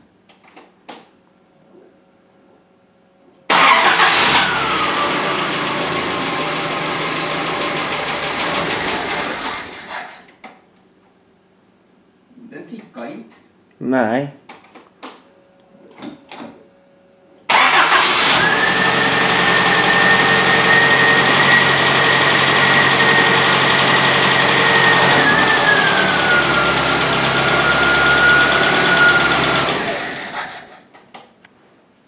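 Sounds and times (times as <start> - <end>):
car engine idling with whine: 4.1 - 9.3, 18.2 - 30.4.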